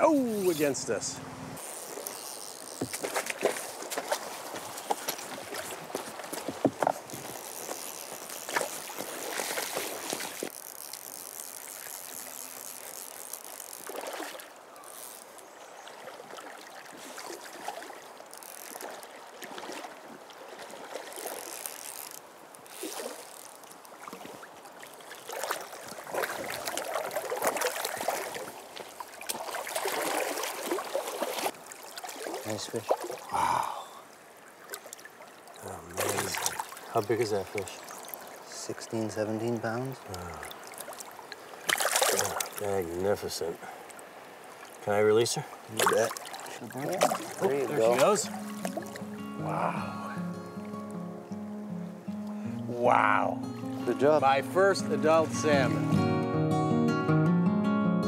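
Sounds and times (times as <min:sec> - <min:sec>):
river current over shallows: 0:00.0 - 0:56.2
splashing of person wading: 0:01.6 - 0:38.5, 0:40.0 - 0:42.7, 0:45.5 - 0:49.8.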